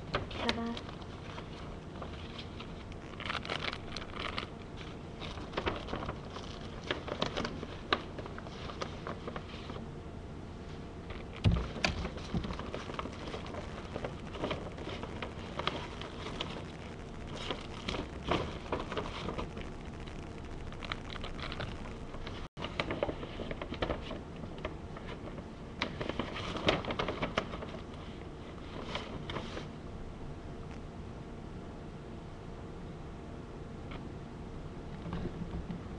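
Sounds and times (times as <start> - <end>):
plastic packaging crinkling: 0.1 - 9.8, 11.1 - 28.0.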